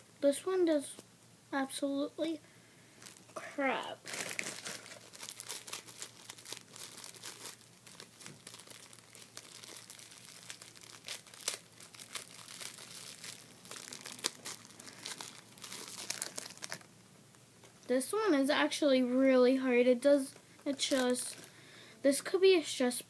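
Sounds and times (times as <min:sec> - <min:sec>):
plastic wrapper crinkling: 0:03.0 - 0:16.9, 0:20.3 - 0:21.6.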